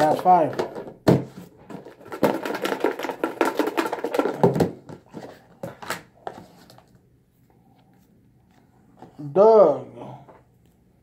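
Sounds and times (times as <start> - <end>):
paper slips rattling in plastic tub: 1.7 - 4.6.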